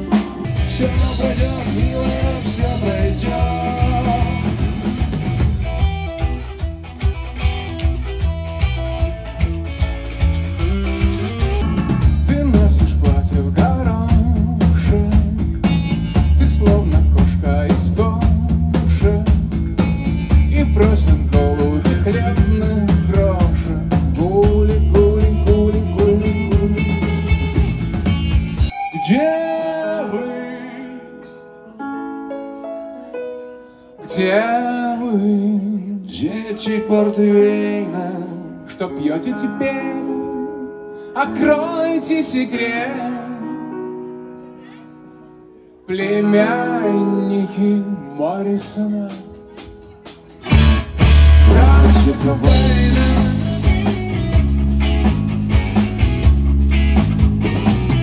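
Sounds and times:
man singing with vibrato: 0:00.0 - 0:05.0, 0:11.7 - 0:19.5, 0:20.2 - 0:27.4, 0:28.7 - 0:31.9, 0:34.0 - 0:43.8, 0:45.8 - 0:54.0
sliding lead melody: 0:00.0 - 0:35.5, 0:36.3 - 0:58.0
rock band playing live: 0:00.0 - 0:58.0
piano-tone keyboard notes: 0:28.7 - 0:53.8.

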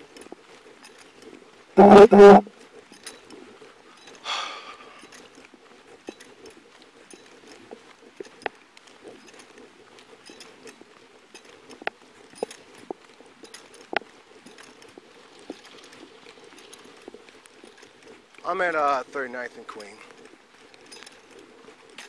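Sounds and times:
gear clinking and knocking: 0:00.0 - 0:02.0, 0:02.8 - 0:22.0.

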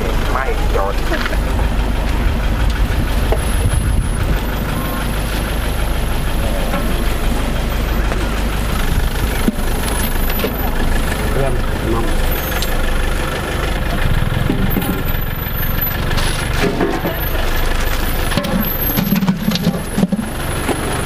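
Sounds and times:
low rumble: 0:00.0 - 0:20.9
murmur of voices: 0:04.2 - 0:09.6.

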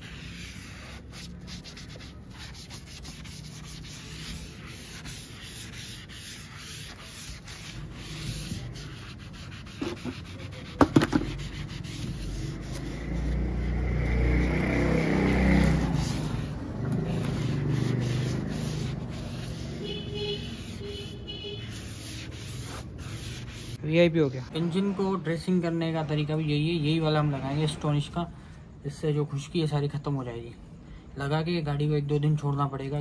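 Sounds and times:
foam pad scrubbing plastic bumper: 0:15.6 - 0:19.6.

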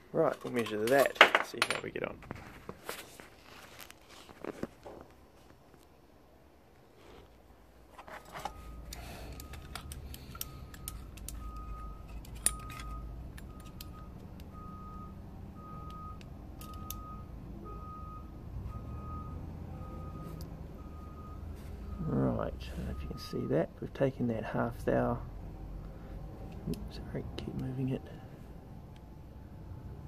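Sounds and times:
reversing alarm beeping: 0:08.5 - 0:23.6.

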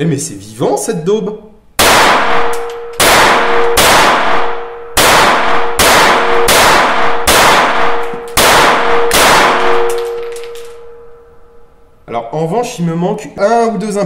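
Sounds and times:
pistol shots with echo: 0:01.8 - 0:11.0
metallic ring: 0:02.6 - 0:03.0, 0:09.7 - 0:11.8.

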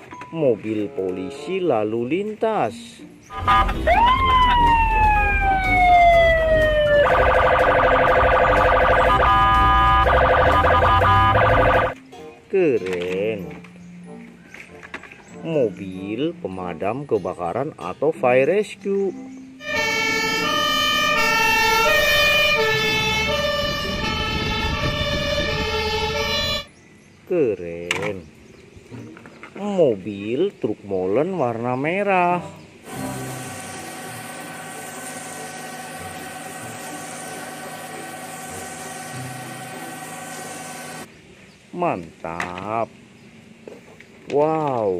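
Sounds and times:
police car siren: 0:03.3 - 0:12.0, 0:19.6 - 0:26.7.

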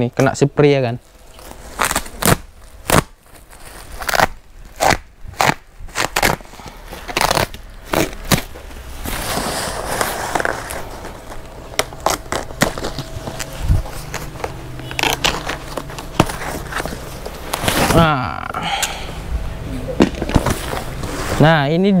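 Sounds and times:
plastic rustling: 0:00.8 - 0:18.5, 0:19.9 - 0:21.6
plastic sacking tearing: 0:01.0 - 0:18.5.

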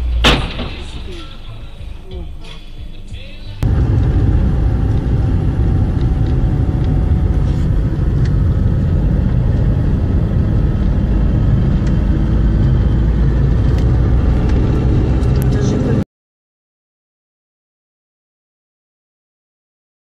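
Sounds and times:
car road and engine rumble: 0:00.0 - 0:16.0.

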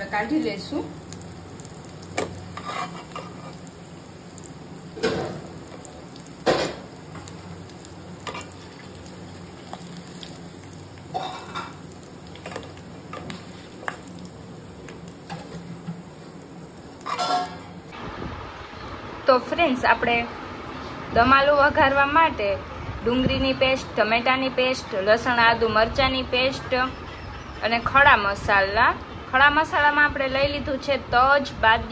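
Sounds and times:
potatoes sizzling in hot oil: 0:00.0 - 0:17.9.

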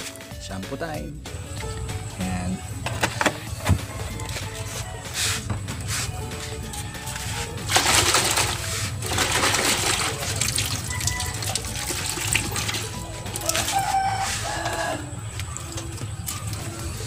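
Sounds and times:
background music: 0:00.0 - 0:17.0
water spraying from hose: 0:04.3 - 0:17.0
water splashing into steel basin: 0:07.6 - 0:17.0.

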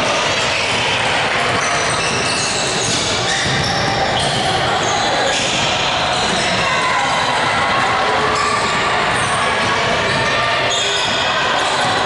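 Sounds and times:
spectator chatter: 0:00.0 - 0:12.0
sneakers squeaking: 0:00.1 - 0:12.0
basketball bouncing on court: 0:01.4 - 0:04.6.

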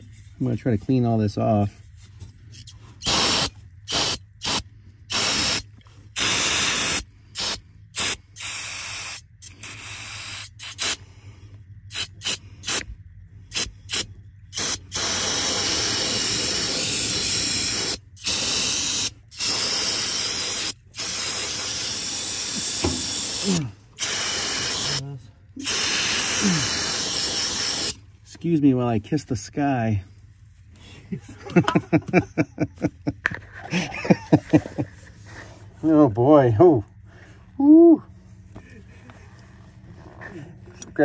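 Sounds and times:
aerosol spray hissing: 0:02.6 - 0:11.0, 0:11.9 - 0:12.8, 0:13.5 - 0:28.0.

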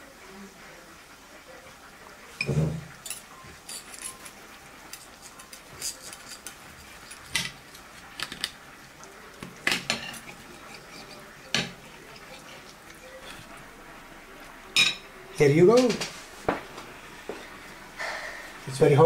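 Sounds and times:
knife and fork clinking on metal plate: 0:02.4 - 0:08.4.

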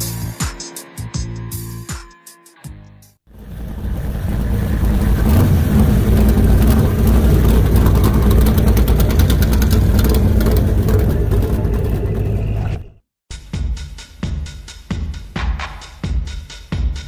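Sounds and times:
vehicle engine rumbling: 0:03.3 - 0:13.1.

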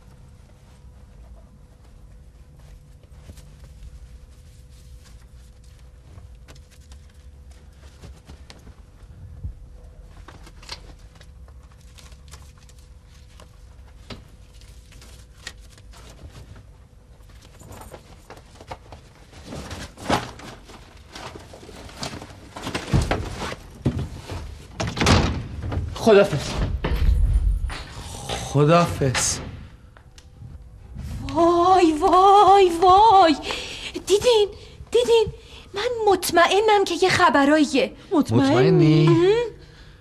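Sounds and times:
faint steady hum: 0:00.0 - 0:40.0
rustling and knocks of handling: 0:00.1 - 0:27.2.

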